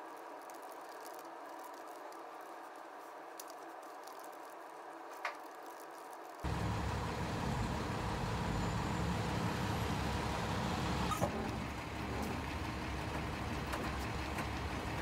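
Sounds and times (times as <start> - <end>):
bus engine running: 6.5 - 15.0.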